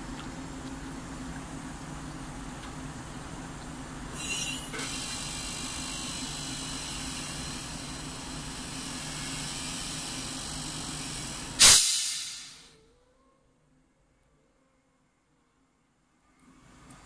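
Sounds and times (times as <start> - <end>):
press power unit humming: 0.0 - 12.6
loud hydraulic hiss: 4.2 - 12.7.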